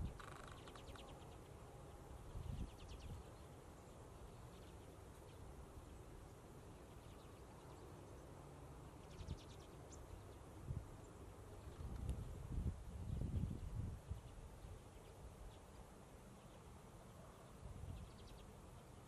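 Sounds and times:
low wind rumble: 0:00.0 - 0:19.0
bird rattling calls: 0:00.1 - 0:01.0.

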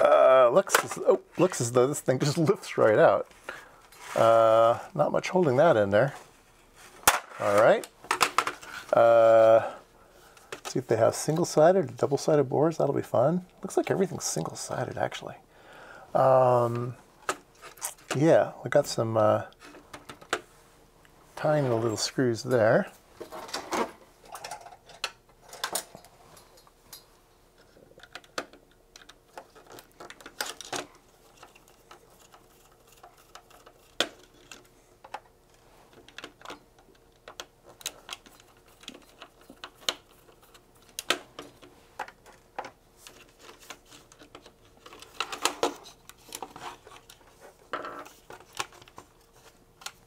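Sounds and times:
plastic parts clicking and rattling: 0:07.0 - 0:09.0, 0:19.5 - 0:20.4, 0:23.2 - 0:50.0.

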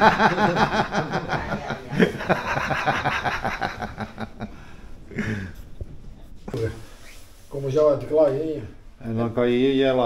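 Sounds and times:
person chuckling: 0:00.0 - 0:05.7.

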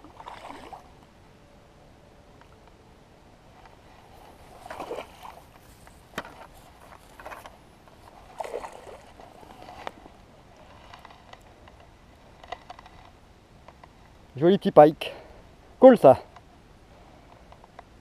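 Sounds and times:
fish splashing in water: 0:04.5 - 0:05.6.

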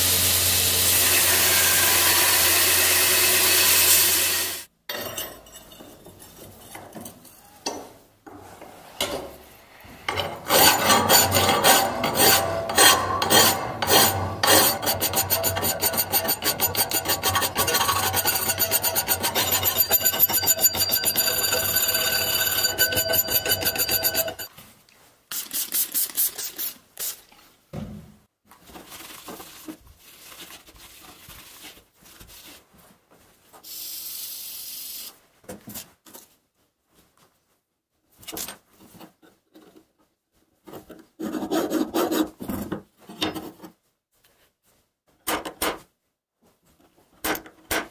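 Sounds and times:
file rasping on steel: 0:10.4 - 0:24.5.

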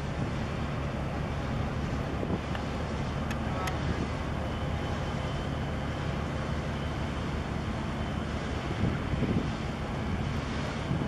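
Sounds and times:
ship engine drone: 0:00.0 - 0:11.0
wind noise on microphone: 0:01.9 - 0:02.7, 0:08.4 - 0:11.0.

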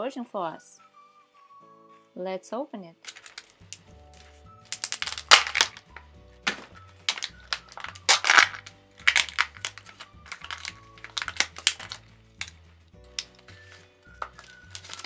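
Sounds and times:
soft background music: 0:00.0 - 0:15.0
foil wrapper crinkling: 0:03.1 - 0:03.6, 0:04.7 - 0:15.0
plastic clicks and rustles: 0:03.1 - 0:03.9, 0:04.7 - 0:15.0.

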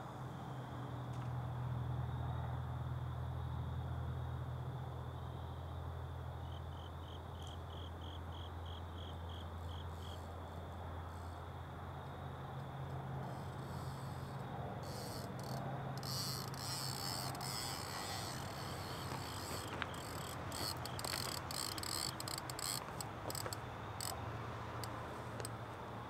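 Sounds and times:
crickets chirping: 0:00.0 - 0:26.0
steady low hum: 0:09.7 - 0:26.0.

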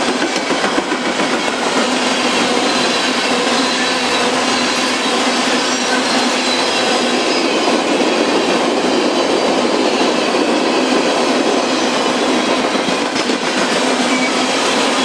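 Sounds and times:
train wheels rolling on rails: 0:00.0 - 0:15.0
high wheel squealing: 0:01.9 - 0:10.3, 0:13.8 - 0:15.0.

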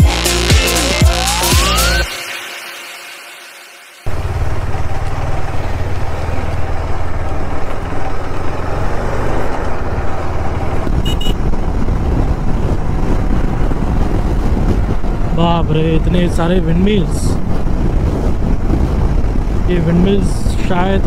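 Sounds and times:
motorcycle engine rumble: 0:04.1 - 0:21.0
wind rush: 0:04.2 - 0:21.0
brief high beeps: 0:11.0 - 0:11.4.

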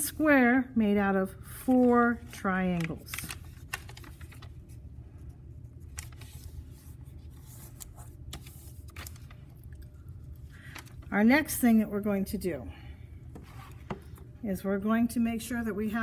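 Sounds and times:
low steady hum: 0:00.0 - 0:16.0
paper crinkling: 0:01.6 - 0:11.2.

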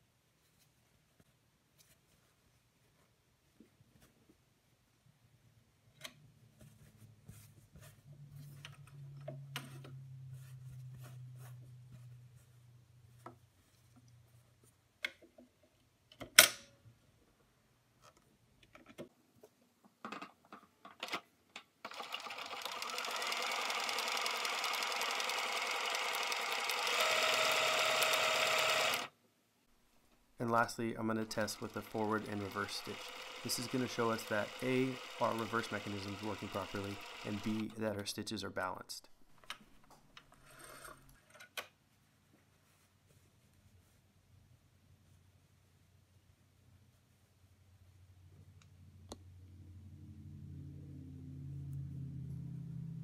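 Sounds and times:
sewing machine running: 0:21.9 - 0:29.1, 0:31.2 - 0:37.7.

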